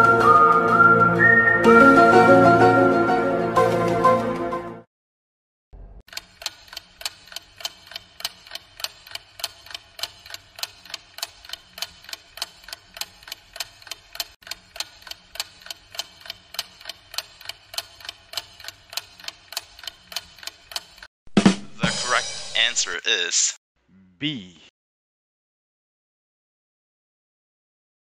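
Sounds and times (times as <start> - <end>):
clock ticking: 6.1 - 21.1.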